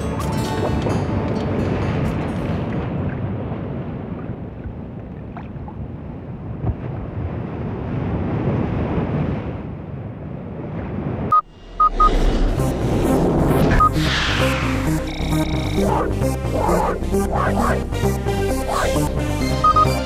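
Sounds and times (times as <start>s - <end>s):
sea surf: 0.0s - 4.5s, 7.1s - 19.8s
wind rushing: 10.9s - 19.4s
short electronic beeps: 11.3s - 12.2s, 13.8s - 14.1s, 19.6s - 20.0s
electronic music intro: 11.4s - 20.0s.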